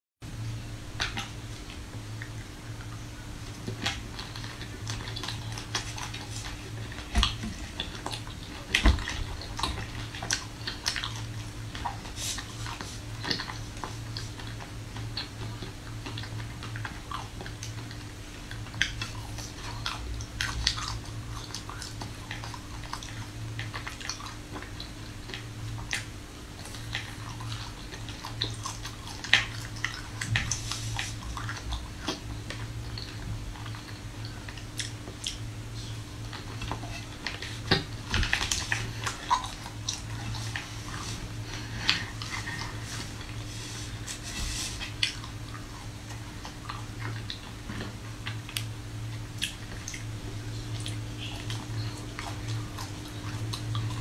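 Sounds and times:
low steady hum: 0.2s - 54.0s.

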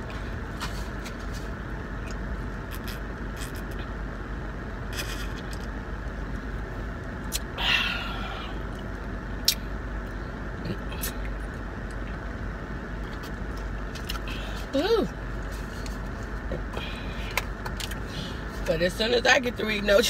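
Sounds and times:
idling car hum: 0.0s - 20.0s
person sighing ahh: 7.6s - 8.6s.

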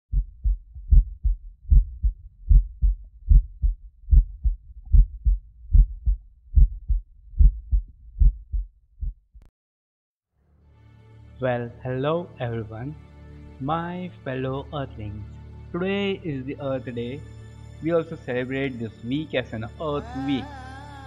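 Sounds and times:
low deep thumping in pairs: 0.1s - 9.5s.

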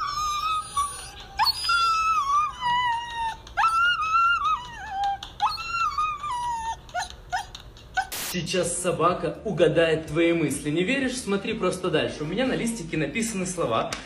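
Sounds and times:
dog wailing: 0.0s - 8.2s.

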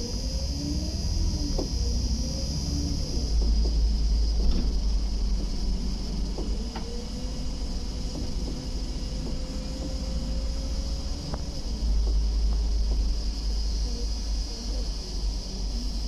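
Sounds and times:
bus engine rumble: 0.0s - 16.0s
faint whine: 0.0s - 16.0s
bus body rattling clicks: 3.3s - 13.3s.

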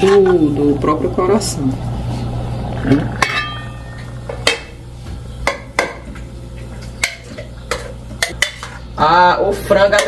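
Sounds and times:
metal cookware clinking: 3.2s - 4.8s, 5.4s - 6.1s, 7.0s - 8.9s, 9.7s - 10.0s.

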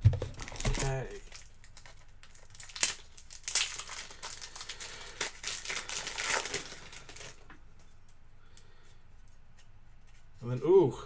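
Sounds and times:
card pack wrapper crinkling: 0.1s - 7.5s.

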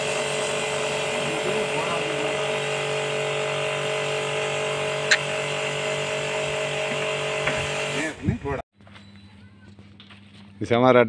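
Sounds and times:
water jet hissing: 0.0s - 8.2s
pressure washer pump humming: 0.0s - 8.6s.

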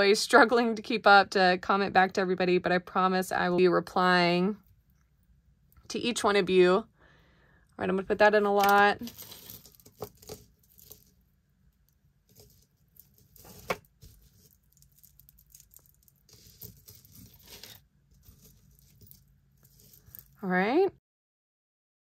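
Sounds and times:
metal chain necklaces clinking: 14.7s - 20.4s.

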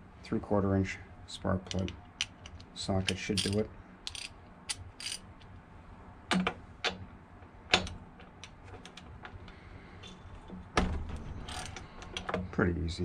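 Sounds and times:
ratchet clicking and clanking: 1.7s - 5.3s, 11.4s - 12.4s.

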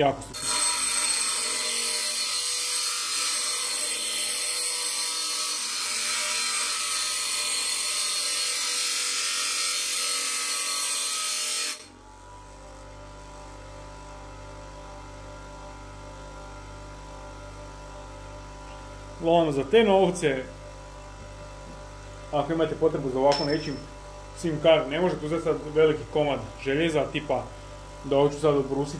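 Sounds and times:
bench grinder grinding nail: 0.2s - 14.8s, 22.8s - 28.2s.

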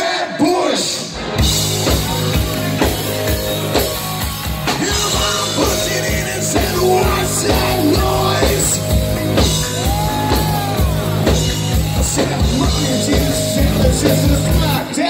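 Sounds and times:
live rock band playing: 0.8s - 15.0s
person singing into microphone: 4.8s - 9.0s, 12.1s - 15.0s.

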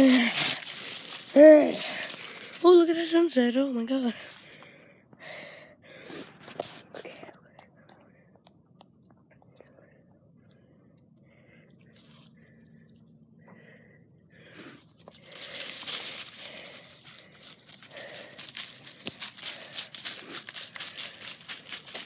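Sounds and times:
hurried footsteps outdoors: 0.0s - 5.3s, 14.5s - 22.0s.

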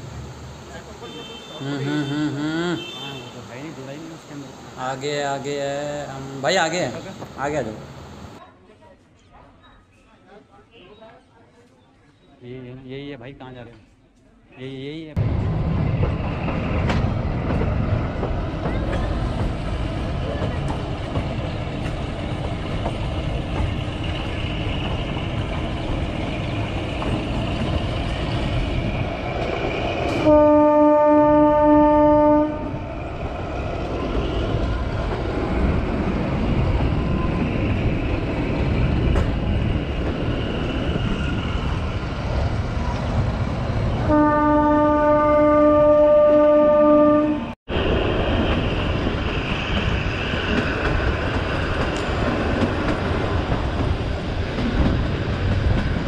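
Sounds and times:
train rumbling: 0.0s - 8.4s, 14.7s - 56.0s
train horn blasts: 30.2s - 32.8s, 44.0s - 47.6s.

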